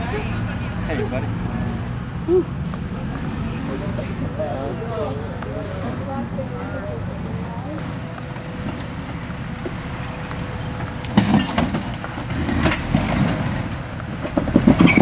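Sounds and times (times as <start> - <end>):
tires working over rocks: 0.0 - 15.0
vehicle engine low rumble: 0.0 - 15.0.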